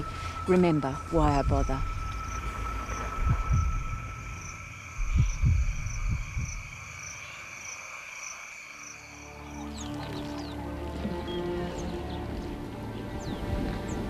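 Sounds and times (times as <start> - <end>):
frogs chirping: 0.0 - 14.0
insects trilling: 0.0 - 14.0
low thumps: 1.0 - 6.8.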